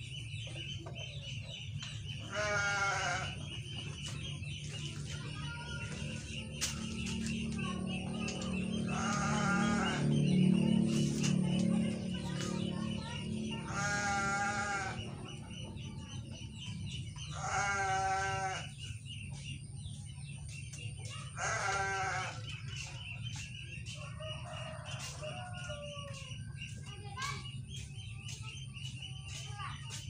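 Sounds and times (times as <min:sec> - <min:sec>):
steady low hum: 0:00.0 - 0:29.3
farm animal bleating: 0:02.2 - 0:03.7, 0:08.6 - 0:10.2, 0:13.5 - 0:15.3, 0:17.2 - 0:18.9, 0:21.2 - 0:22.6.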